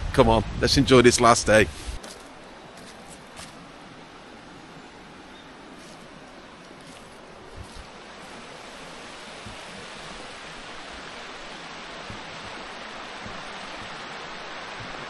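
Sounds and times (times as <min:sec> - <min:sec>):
stream water rushing: 0:01.2 - 0:15.0
soft thumps: 0:09.4 - 0:10.0, 0:12.0 - 0:14.1.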